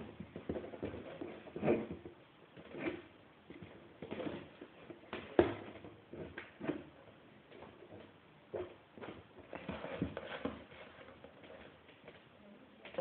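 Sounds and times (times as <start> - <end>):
cat scratching cardboard box: 8.5 - 12.0.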